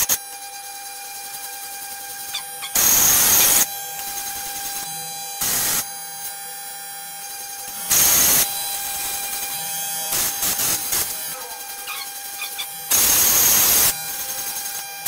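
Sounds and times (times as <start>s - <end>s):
electric beard trimmer buzzing: 0.0s - 15.0s
short bursts of whirring: 7.3s - 15.0s.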